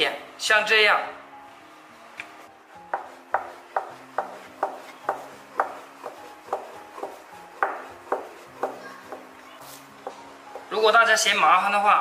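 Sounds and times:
rolling pin knocking on wooden board: 2.9 - 9.4, 10.0 - 10.8.

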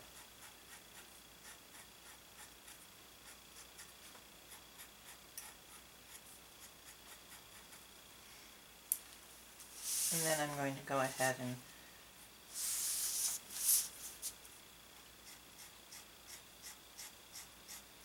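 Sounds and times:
pen nib scratching on paper: 0.0 - 7.8, 15.2 - 18.0.

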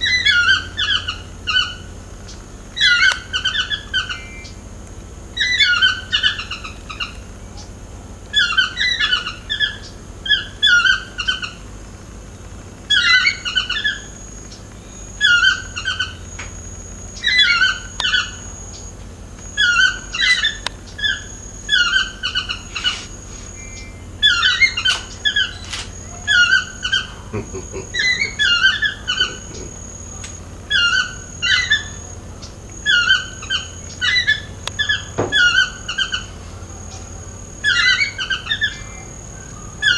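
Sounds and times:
toucan yelping calls: 0.0 - 39.9.

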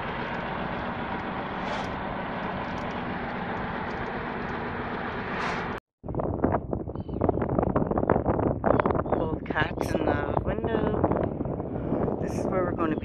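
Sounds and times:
road and engine noise in van: 0.0 - 5.8
wind buffeting microphone: 0.0 - 13.0.

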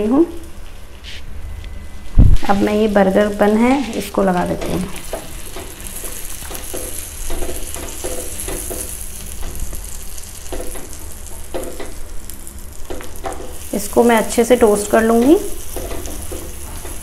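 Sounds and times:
butter sizzling on a hot pan: 4.6 - 17.0.

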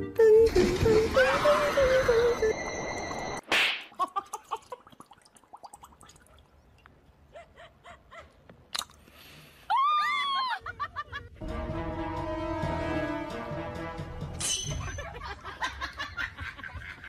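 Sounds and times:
music: 0.0 - 1.1, 11.2 - 15.2.

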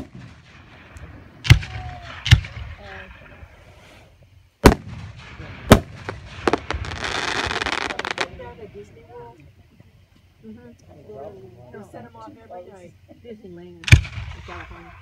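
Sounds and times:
firework shells bursting with booms: 0.0 - 3.7, 4.6 - 8.8, 13.8 - 15.0
firework crackling: 0.0 - 9.4.

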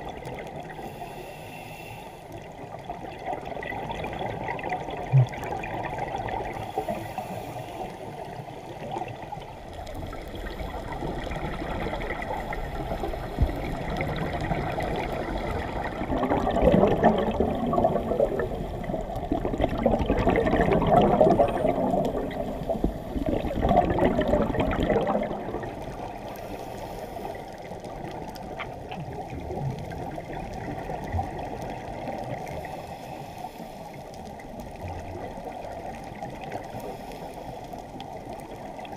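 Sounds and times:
muffled underwater rush: 0.0 - 38.9
scuba exhalation bubbles gurgling: 2.4 - 26.6, 27.2 - 32.8.

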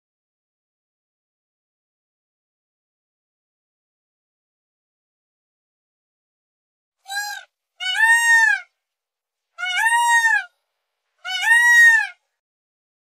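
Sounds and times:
peacock wailing call: 7.1 - 8.7, 9.6 - 10.5, 11.2 - 12.2.

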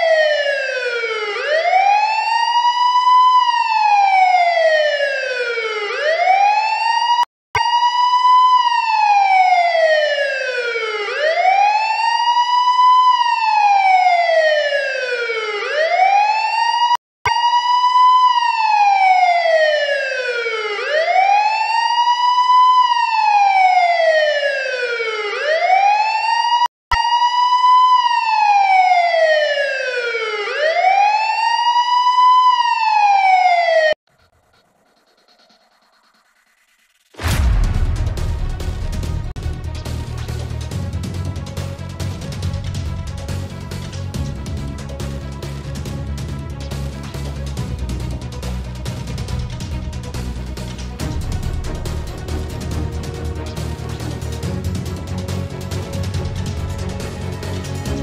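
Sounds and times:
electronic wail siren: 0.0 - 36.6, 50.3 - 58.0.

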